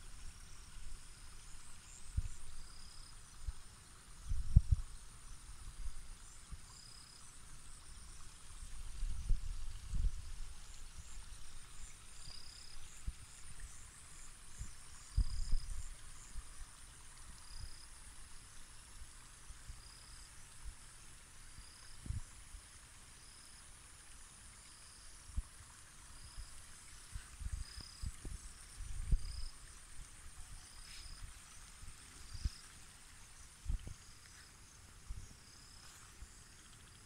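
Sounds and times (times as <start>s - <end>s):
wind buffeting microphone: 4.2s - 4.9s, 8.9s - 11.4s, 27.1s - 30.6s, 33.6s - 34.0s.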